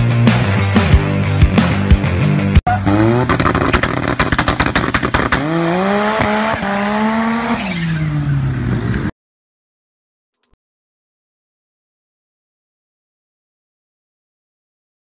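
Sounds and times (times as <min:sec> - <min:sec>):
car engine revving: 0:02.7 - 0:09.1
sharp exhaust pops: 0:03.0 - 0:07.2.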